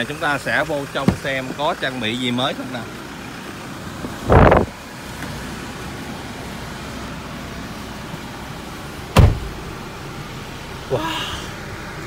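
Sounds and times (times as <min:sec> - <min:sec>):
diesel engine idling: 0:00.0 - 0:12.0
car door shutting: 0:01.0 - 0:01.6, 0:04.0 - 0:05.4, 0:09.1 - 0:09.7
loud thump: 0:09.1 - 0:09.6.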